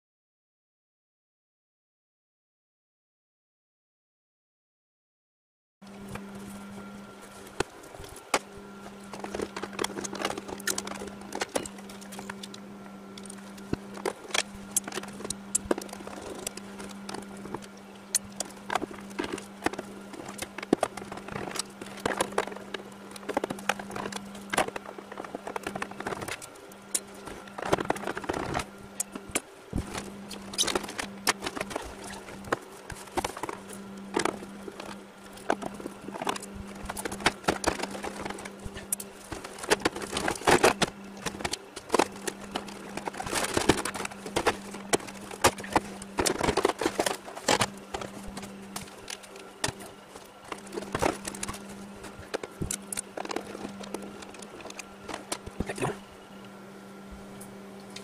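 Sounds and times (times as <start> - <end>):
steady low hum: 5.8 - 58.0
plastic panels clicking and scraping: 13.2 - 55.9.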